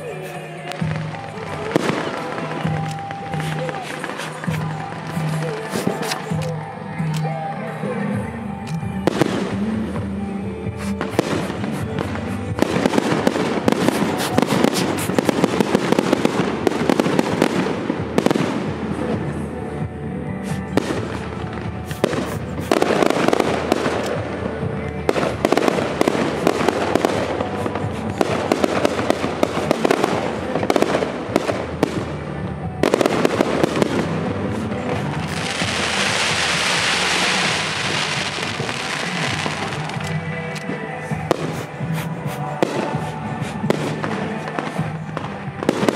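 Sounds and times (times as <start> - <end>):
fireworks bursting: 0.0 - 19.4, 20.4 - 45.9
fireworks crackling: 0.0 - 45.9
music: 0.0 - 45.9.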